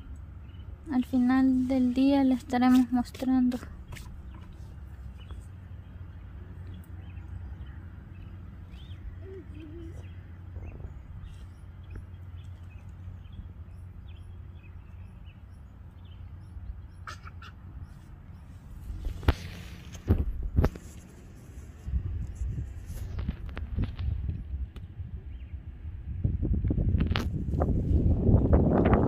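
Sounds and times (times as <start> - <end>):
wind rumble on microphone: 3.6 - 16.9, 18.7 - 29.0
bird chirps: 3.8 - 19.6.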